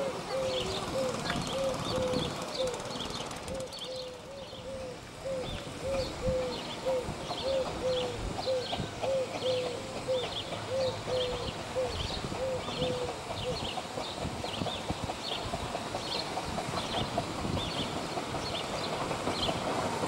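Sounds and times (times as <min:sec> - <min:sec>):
low rumble of locomotive: 0:00.0 - 0:20.0
steam locomotive running gear squeak: 0:00.6 - 0:04.3.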